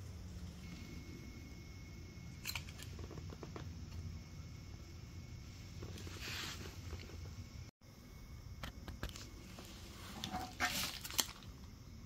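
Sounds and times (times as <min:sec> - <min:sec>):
camp stove burning rumble: 0:00.0 - 0:07.7.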